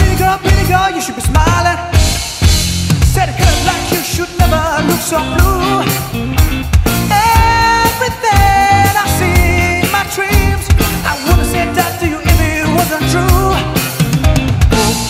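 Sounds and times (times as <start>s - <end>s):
man singing: 0.0s - 2.2s, 3.0s - 6.4s, 7.0s - 15.0s
live rock band playing: 0.0s - 15.0s
drum hits: 1.4s - 4.7s.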